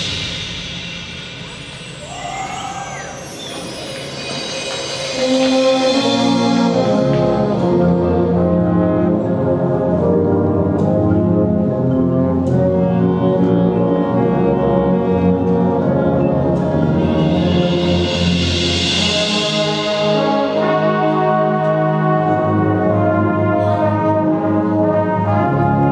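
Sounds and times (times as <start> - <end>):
sharp percussion hits: 0.0 - 8.2, 16.7 - 23.1
marching band brass chords: 0.0 - 25.9.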